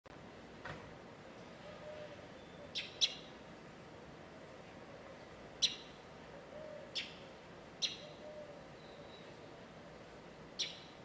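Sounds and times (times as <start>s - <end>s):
faint low dove coos: 1.6s - 2.8s, 6.3s - 7.0s, 8.0s - 9.2s.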